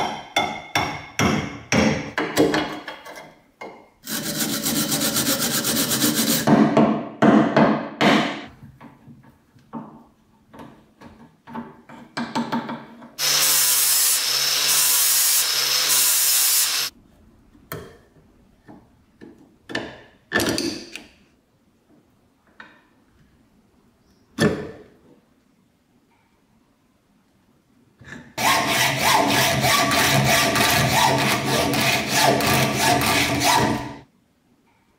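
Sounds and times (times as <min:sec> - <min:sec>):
hacksaw cutting metal: 0:04.0 - 0:06.5, 0:13.2 - 0:16.9, 0:28.4 - 0:34.0
power tool running: 0:13.2 - 0:16.9.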